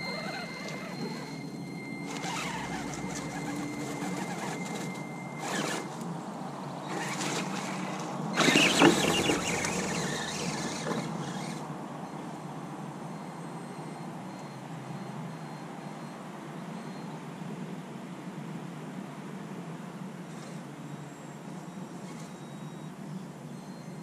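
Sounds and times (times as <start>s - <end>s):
toy truck motor whining: 0.0s - 6.1s, 6.9s - 11.7s.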